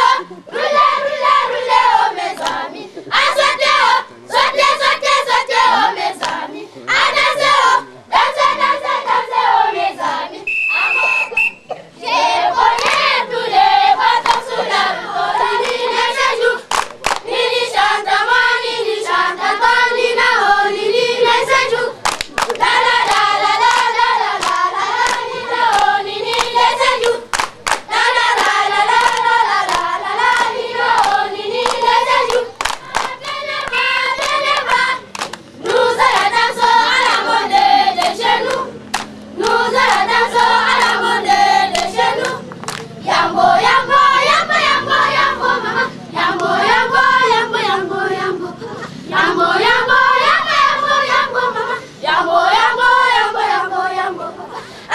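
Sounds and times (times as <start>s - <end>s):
group of voices singing: 0.0s - 54.9s
hand claps: 2.4s - 2.6s, 6.2s - 6.4s, 12.7s - 13.1s, 14.2s - 14.5s, 16.7s - 17.3s, 22.0s - 36.4s, 38.0s - 40.1s, 41.7s - 42.9s.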